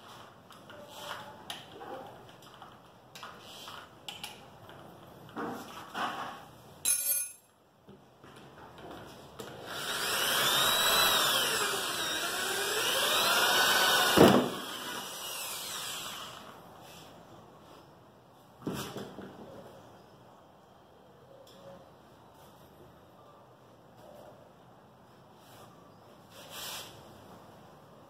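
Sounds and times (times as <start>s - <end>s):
electric drill running: 9.6s - 16.6s.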